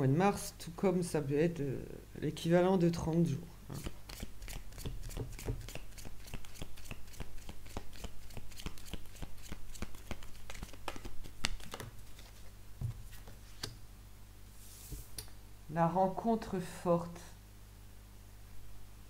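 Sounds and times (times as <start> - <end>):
cards being shuffled: 3.7 - 13.8.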